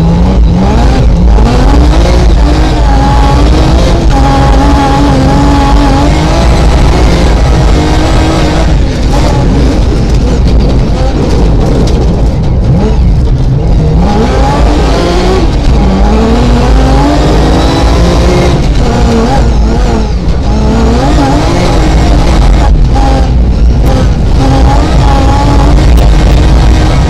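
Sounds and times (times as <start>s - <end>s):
car engine accelerating: 0.0s - 27.0s
low rumble of tyres: 0.0s - 27.0s.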